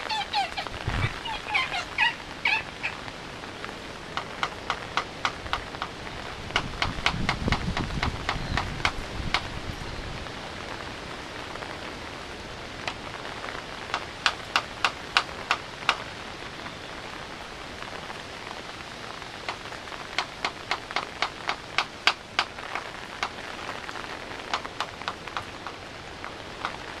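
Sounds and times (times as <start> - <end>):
steady rain falling: 0.0 - 27.0
sharp clicks: 4.1 - 9.5.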